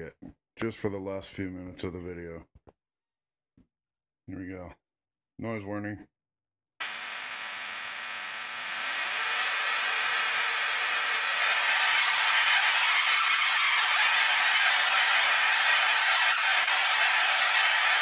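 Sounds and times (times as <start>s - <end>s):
tesla coil crackling buzz: 6.8s - 18.0s.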